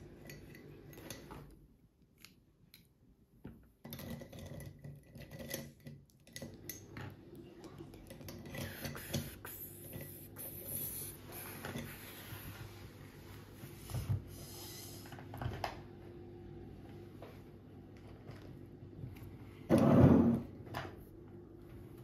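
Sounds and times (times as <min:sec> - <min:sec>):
marker rubbing on paper: 0:08.6 - 0:12.4.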